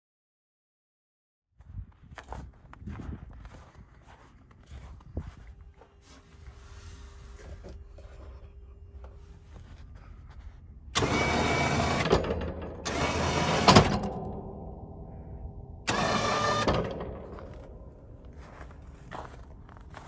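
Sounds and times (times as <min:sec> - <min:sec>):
low hum: 0:01.6 - 0:20.0
electric winch running: 0:10.9 - 0:15.0, 0:15.7 - 0:17.8.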